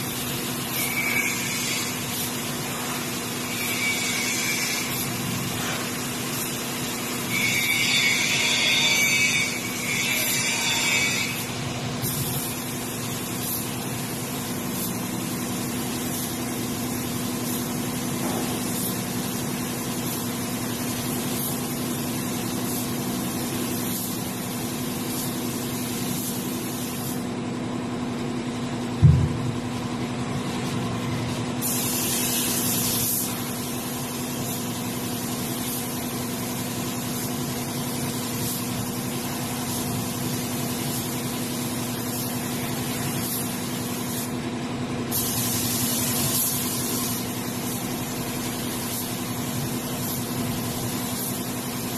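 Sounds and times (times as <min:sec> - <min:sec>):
spray gun hissing: 0:04.6 - 0:07.3, 0:11.3 - 0:27.2, 0:31.6 - 0:44.3, 0:45.1 - 0:51.9
air compressor humming: 0:11.2 - 0:51.9
low thump: 0:29.0 - 0:29.6.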